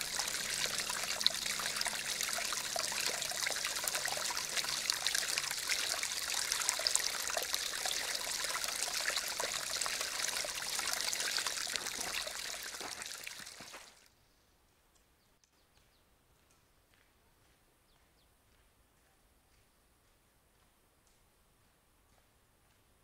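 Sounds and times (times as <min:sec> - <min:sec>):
brook trickling over stones: 0:00.0 - 0:14.1.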